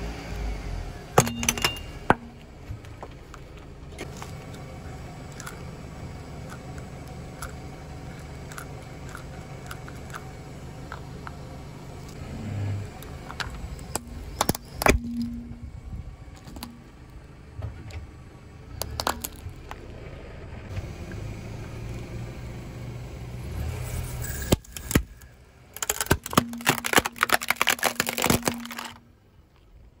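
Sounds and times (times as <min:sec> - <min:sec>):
low engine rumble: 0:00.0 - 0:30.0
tyre crushing plastic toys: 0:16.4 - 0:16.8, 0:18.8 - 0:19.8, 0:24.4 - 0:29.1
plastic crackling snaps: 0:25.8 - 0:29.0.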